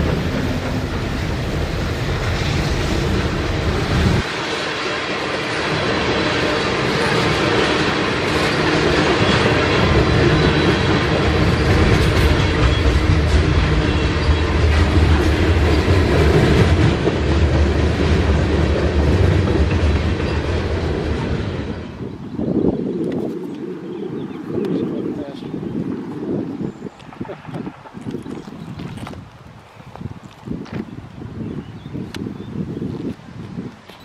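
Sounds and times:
train wheels rumbling on rails: 0.0 - 23.7.

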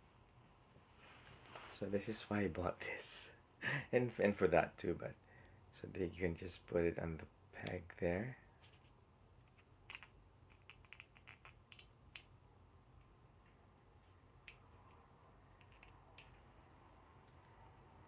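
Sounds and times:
low steady hum: 0.0 - 18.0
small plastic clicks and taps: 9.4 - 12.3, 13.0 - 15.0, 15.6 - 16.4.

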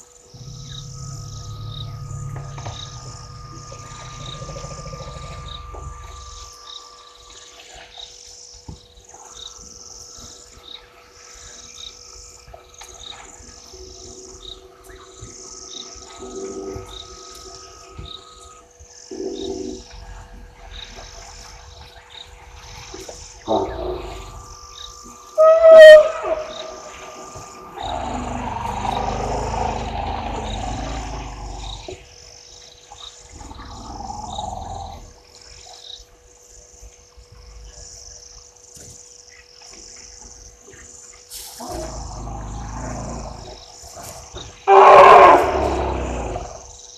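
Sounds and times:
birds chirping: 0.0 - 36.1, 41.6 - 46.9
insect high buzzing: 0.0 - 36.5, 37.8 - 46.9
faint steady hum: 0.0 - 46.9
elephant roaring: 0.3 - 6.6, 22.7 - 24.6, 25.4 - 32.1, 33.3 - 35.2, 41.6 - 43.7, 44.7 - 46.7.

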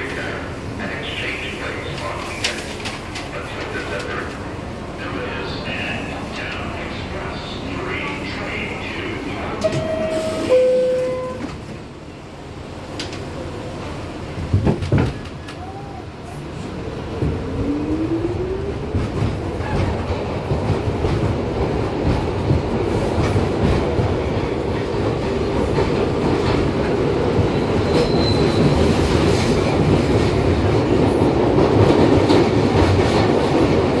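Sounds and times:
subway train motors whining: 0.0 - 34.0
high wheel squeal: 27.8 - 28.8.

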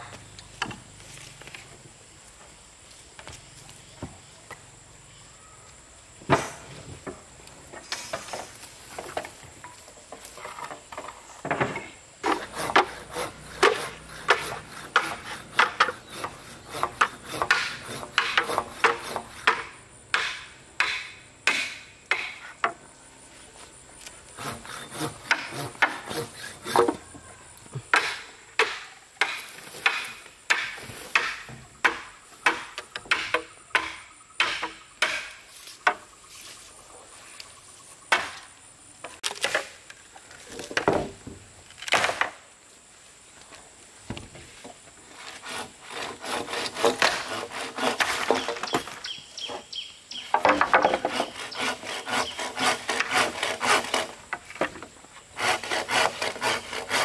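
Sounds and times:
hand tool striking timber: 11.0 - 22.8, 24.4 - 27.0, 27.9 - 36.1, 38.1 - 38.5, 50.2 - 57.0.

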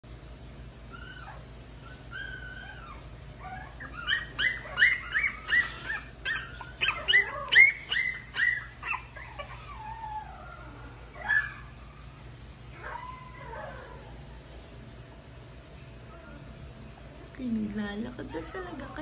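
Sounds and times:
puppy whining: 0.8 - 15.1, 15.8 - 17.2
puppy yipping: 0.9 - 12.0
puppy whimpering: 0.9 - 14.2.

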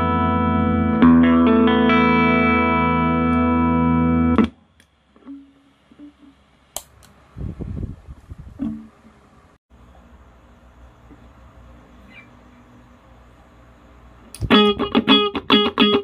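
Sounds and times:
electric guitar chords: 0.0 - 4.6, 14.3 - 16.0.

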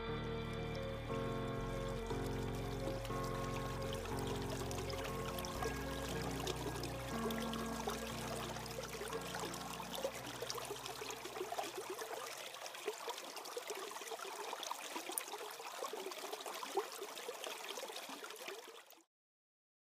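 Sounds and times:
held music chord: 0.0 - 10.8
stream trickling under ice: 0.0 - 19.1.

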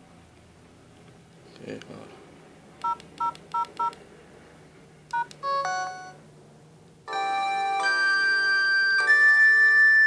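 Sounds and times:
phone keypad beeps: 2.8 - 4.0, 5.1 - 6.2
phone power-on melody: 5.1 - 6.2, 7.1 - 10.0.

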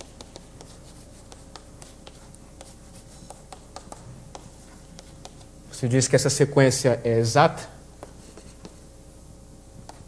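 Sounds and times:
writing taps and scratches on board: 0.0 - 5.5, 8.0 - 8.8.

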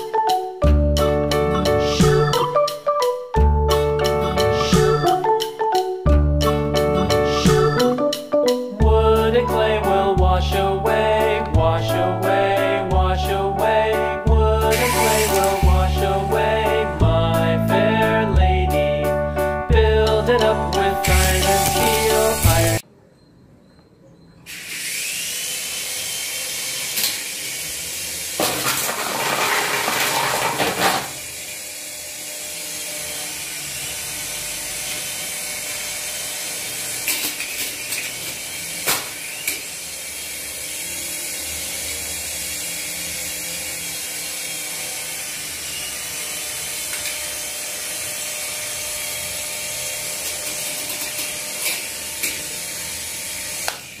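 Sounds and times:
toy helicopter rotors whining: 14.6 - 16.2, 21.0 - 22.8, 24.5 - 54.0.

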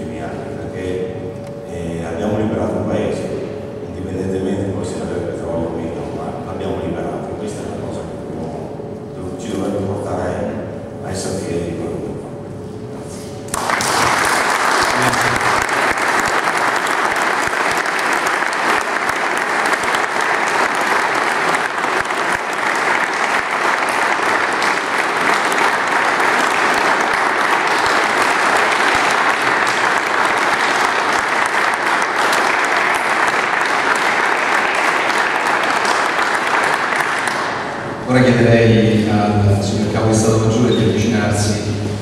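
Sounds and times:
audience applauding: 13.5 - 37.8.

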